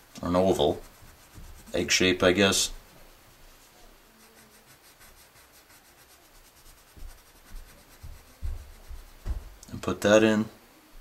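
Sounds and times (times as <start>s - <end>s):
pencil scratching on paper: 0.3s - 2.7s, 3.6s - 9.4s
soft low bumps: 7.0s - 9.8s.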